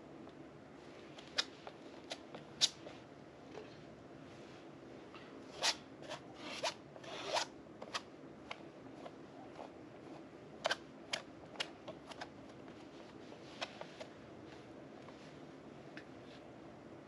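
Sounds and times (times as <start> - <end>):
palette knife scraping paste: 5.5 - 8.0.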